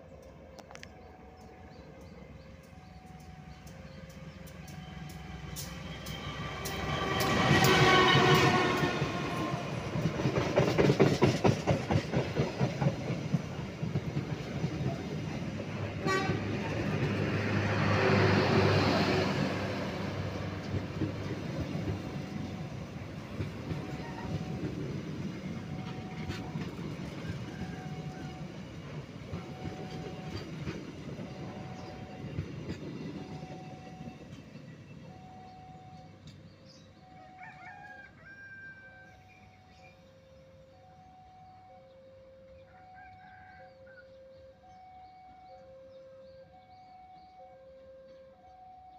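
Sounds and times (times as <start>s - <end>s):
train wheels rolling on rails: 0.1s - 37.2s
rooster crowing: 37.1s - 39.3s, 42.6s - 44.1s.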